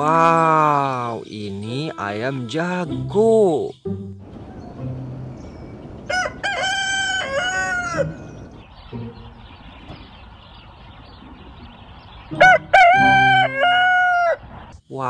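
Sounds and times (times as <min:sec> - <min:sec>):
rooster crowing: 0:06.0 - 0:08.6, 0:12.4 - 0:14.5.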